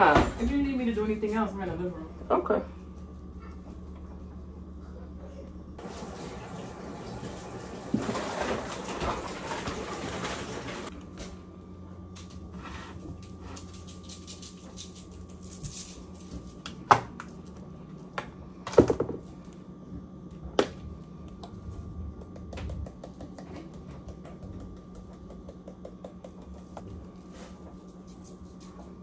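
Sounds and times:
appliance hum: 0:00.0 - 0:29.0.

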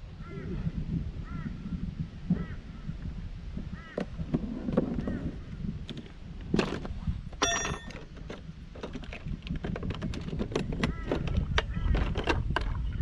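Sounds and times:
metallic clink: 0:07.4 - 0:08.0.

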